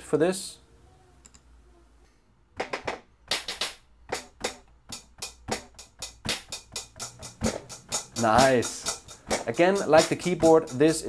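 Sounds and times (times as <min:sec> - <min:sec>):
electronic drum hits: 0:02.6 - 0:10.7.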